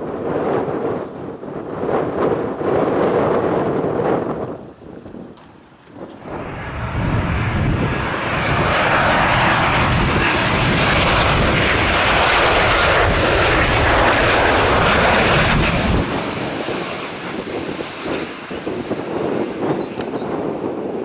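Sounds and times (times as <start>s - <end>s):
wind buffeting microphone: 0.0s - 21.0s
jet engines roaring: 5.4s - 21.0s.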